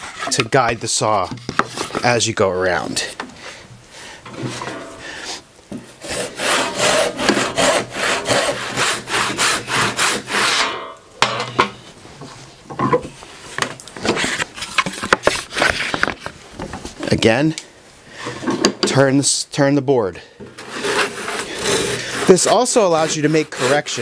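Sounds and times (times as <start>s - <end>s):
handsaw sawing wood: 6.0s - 10.7s, 20.6s - 24.0s.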